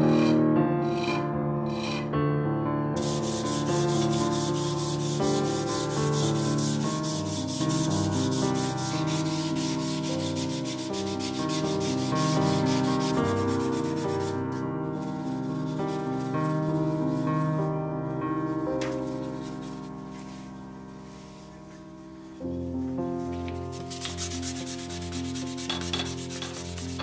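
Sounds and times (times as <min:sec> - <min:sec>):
hand sanding wood: 0:00.0 - 0:02.1, 0:03.0 - 0:14.4, 0:23.8 - 0:27.0
background music with held notes: 0:02.7 - 0:27.0.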